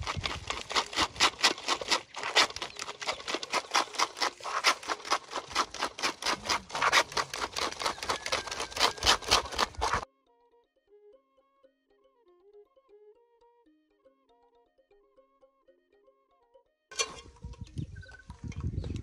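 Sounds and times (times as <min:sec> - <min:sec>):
spoon scraping pulp in strainer: 0:00.0 - 0:10.0.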